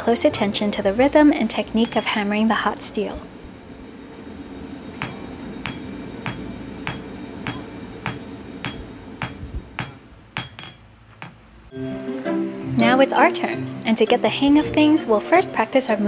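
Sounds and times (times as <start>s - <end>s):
low hum: 1.7s - 11.7s
hammer striking steel on anvil: 1.8s - 2.2s, 5.0s - 11.5s.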